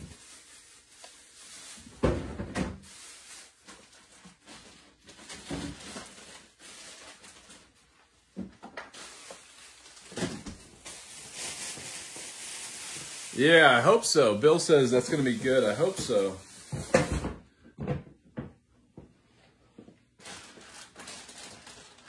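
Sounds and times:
kitchen knocks and thumps: 2.0s - 2.8s, 15.8s - 18.6s.

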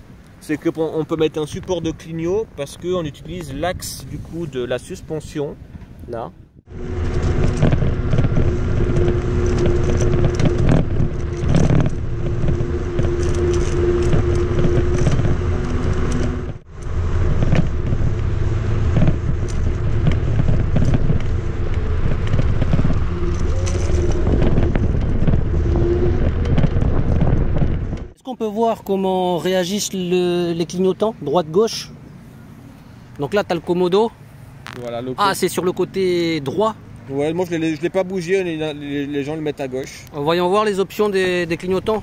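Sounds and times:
wind noise on microphone: 1.4s - 28.2s
rumble over rough ground: 5.1s - 28.2s, 40.9s - 42.0s
electric motor hum: 6.7s - 28.0s.

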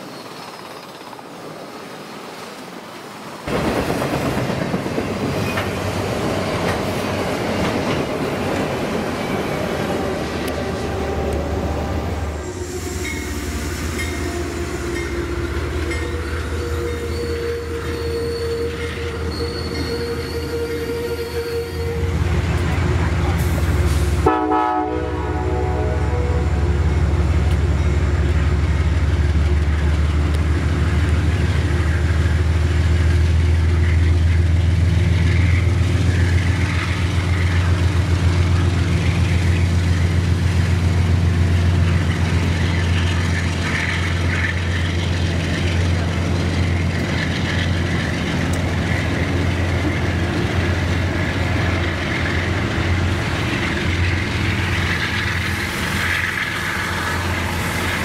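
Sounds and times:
passenger train rumbling past: 0.0s - 58.0s
wheels clattering on rails: 3.5s - 11.5s, 26.8s - 58.0s.

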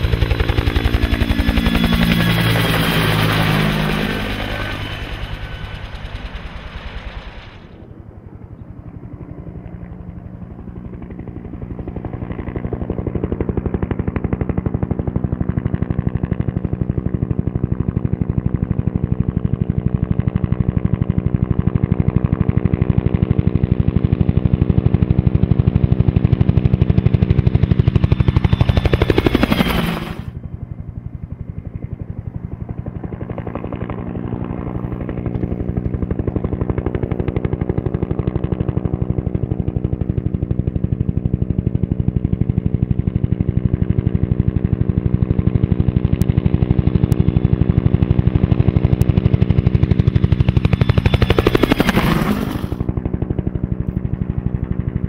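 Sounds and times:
helicopter rotor blade slap: 0.0s - 7.8s, 26.2s - 30.3s, 45.8s - 54.0s
turbine whine: 0.0s - 8.3s, 27.6s - 30.4s, 48.3s - 52.9s.

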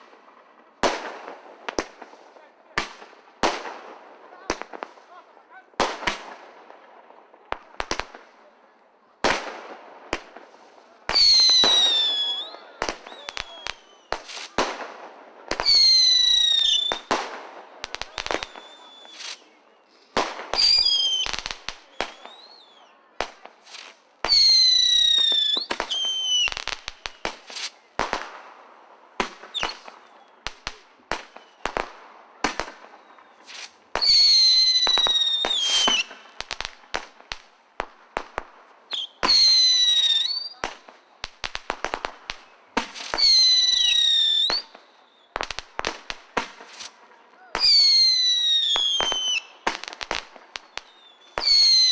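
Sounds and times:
fireworks bangs and cracks: 0.0s - 51.9s
fireworks whistling: 10.1s - 28.5s, 29.2s - 51.9s.

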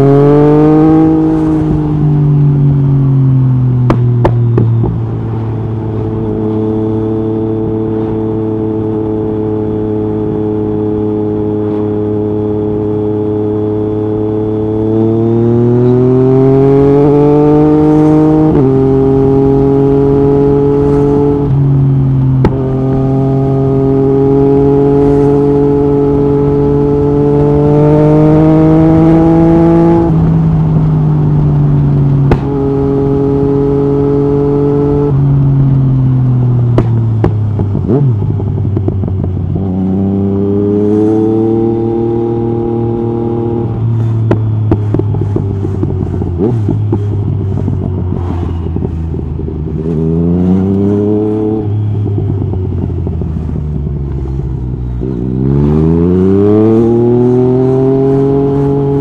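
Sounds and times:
motorcycle engine revving: 0.0s - 59.0s
exhaust pops and crackles: 3.8s - 5.1s, 22.4s - 23.1s, 32.1s - 32.7s, 36.6s - 39.3s, 43.9s - 49.2s.

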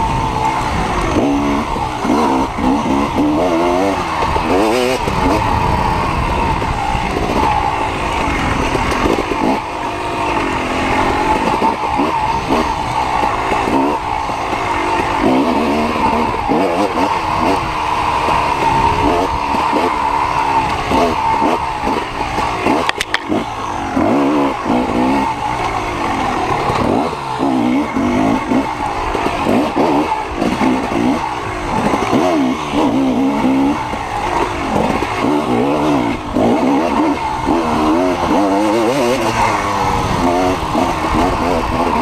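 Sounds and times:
dirt bike engine revving: 0.0s - 42.0s
clatter of sharp knocks: 22.4s - 23.4s.

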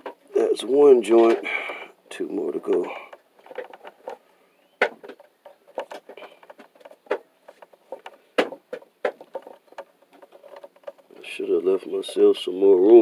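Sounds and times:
wire rustling: 0.0s - 13.0s.

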